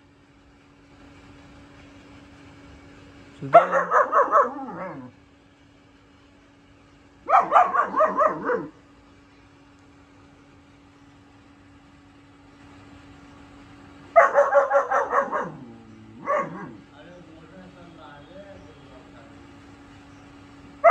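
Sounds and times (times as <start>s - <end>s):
puppy barking: 3.4s - 5.1s, 7.2s - 8.8s, 14.2s - 16.8s.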